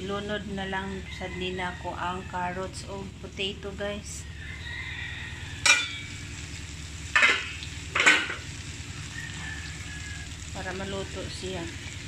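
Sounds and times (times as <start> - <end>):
steady low hum: 0.0 - 12.0
meat frying in a wok: 3.5 - 12.0
spatula clanking against pan: 5.6 - 6.1, 7.2 - 8.4.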